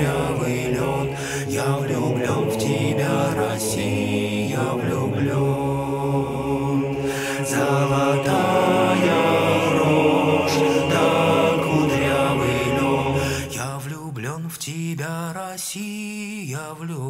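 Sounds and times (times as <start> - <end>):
men singing in harmony: 0.0 - 14.1.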